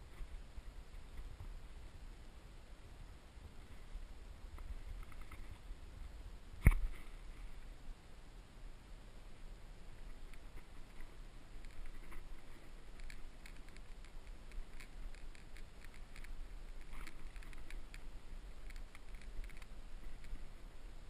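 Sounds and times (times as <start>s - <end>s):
low steady rumble: 0.0s - 21.0s
gear clicking and rustling: 10.0s - 20.5s.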